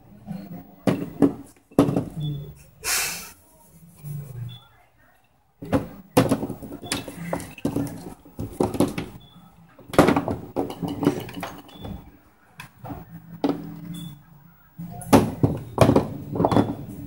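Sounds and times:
golf balls clacking on plastic: 0:05.6 - 0:13.8, 0:15.0 - 0:17.0.

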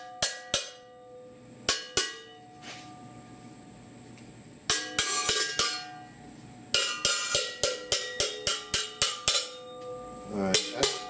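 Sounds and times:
hammer striking sheet steel: 0:00.0 - 0:01.0, 0:01.6 - 0:03.0, 0:04.7 - 0:06.1, 0:06.7 - 0:09.8, 0:10.5 - 0:11.0.

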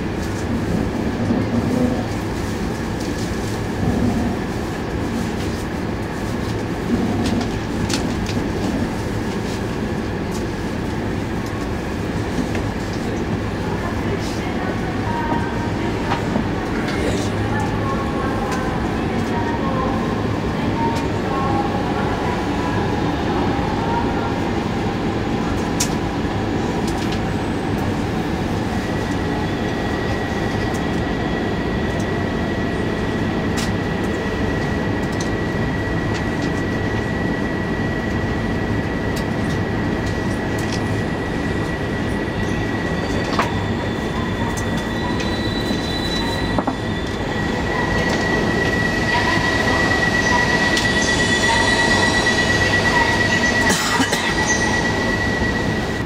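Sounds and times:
train rumbling over track: 0:00.0 - 0:56.0
high-pitched whine: 0:41.0 - 0:56.0.

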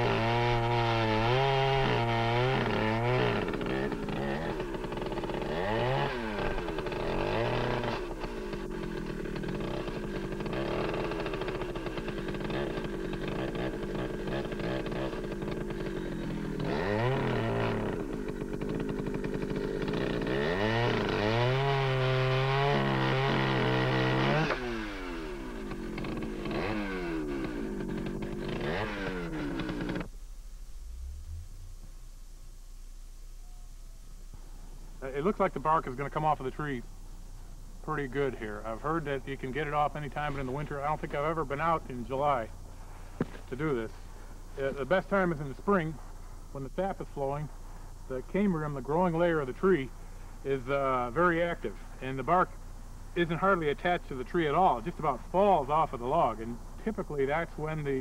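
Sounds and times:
chainsaw cutting log: 0:00.0 - 0:30.1, 0:38.0 - 0:46.0, 0:53.2 - 0:58.0.

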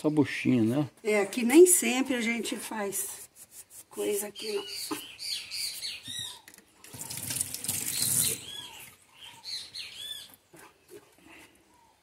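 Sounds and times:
faucet water running into sink: 0:06.9 - 0:08.5.

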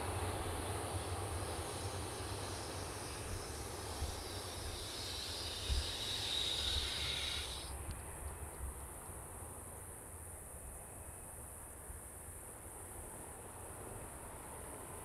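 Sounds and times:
jet engines taxiing: 0:00.0 - 0:07.7
insects chirping: 0:00.0 - 0:11.8.

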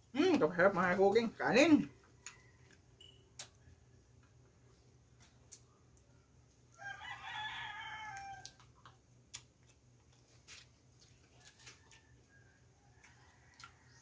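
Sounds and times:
rooster crowing: 0:06.7 - 0:08.6.

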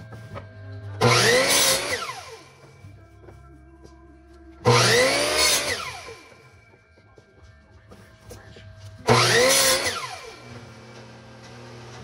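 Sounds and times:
miter saw cutting wood: 0:01.0 - 0:02.5, 0:04.7 - 0:06.4, 0:09.0 - 0:12.0.

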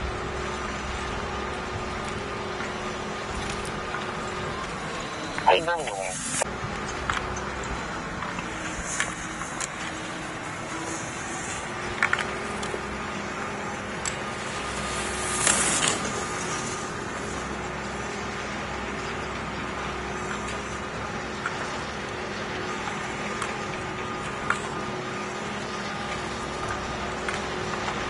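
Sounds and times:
ski edges scraping on snow: 0:14.4 - 0:16.8.

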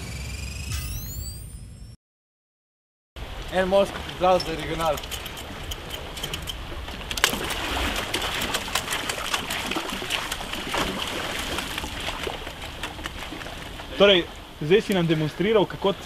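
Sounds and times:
sea water splashing: 0:03.2 - 0:16.0.

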